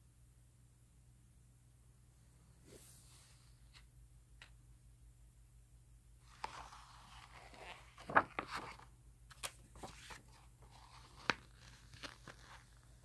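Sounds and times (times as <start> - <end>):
book pages being turned: 6.3 - 13.0.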